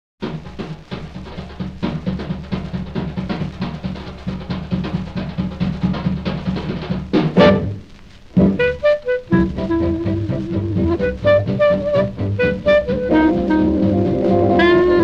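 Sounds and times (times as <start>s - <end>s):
drum kit solo: 0.2s - 15.0s
clarinet and band playing: 7.4s - 15.0s.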